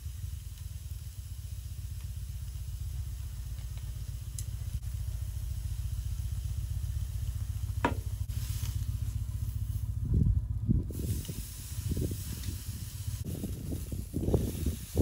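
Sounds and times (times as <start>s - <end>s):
low rumble: 0.0s - 15.0s
steak sizzling on grill: 10.9s - 15.0s.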